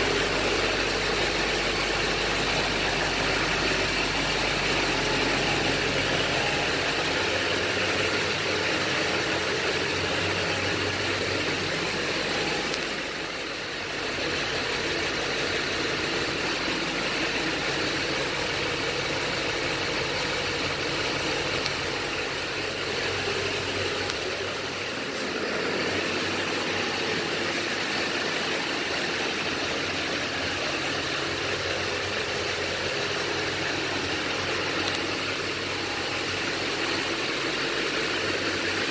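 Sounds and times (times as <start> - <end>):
pickup truck engine idling: 0.0 - 38.9.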